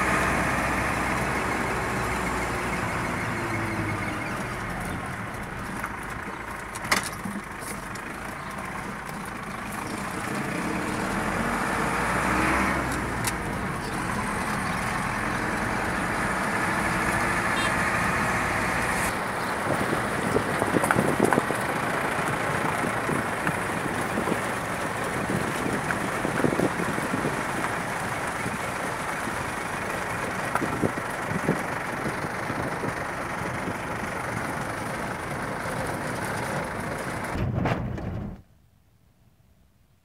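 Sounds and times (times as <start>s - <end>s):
car cabin road rumble: 0.0s - 38.5s
knocks and rattles from bumps: 4.4s - 10.5s.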